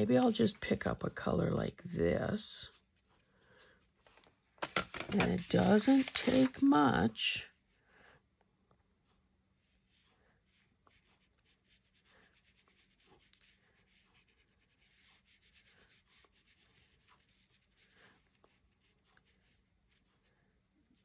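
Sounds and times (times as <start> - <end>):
paintbrush rubbing on paper: 2.6 - 3.9, 5.0 - 7.3, 9.6 - 21.0.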